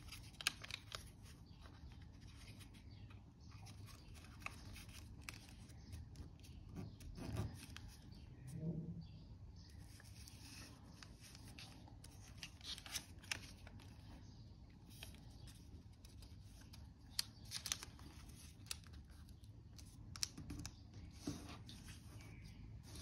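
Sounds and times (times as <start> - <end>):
sharp paper crackles: 0.0 - 2.8, 3.5 - 8.0, 9.9 - 14.1, 14.8 - 20.8
paper rustling while folded: 0.0 - 8.2, 9.8 - 14.2, 14.8 - 23.0.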